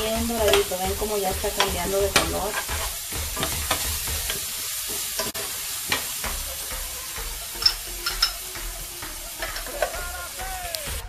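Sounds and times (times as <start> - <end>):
rice sizzling in oil: 0.0 - 11.0
metal spoon scraping pan: 1.5 - 6.0
spoon clinking on pan: 7.6 - 8.4.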